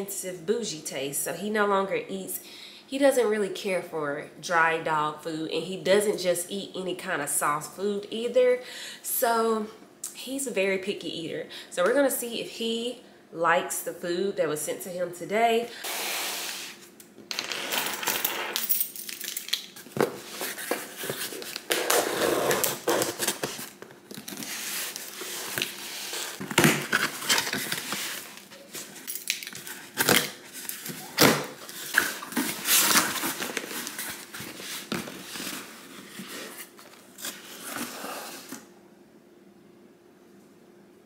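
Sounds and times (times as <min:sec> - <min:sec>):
cardboard crinkling and knocking: 0:19.8 - 0:37.8
packing tape ripping: 0:20.3 - 0:38.6.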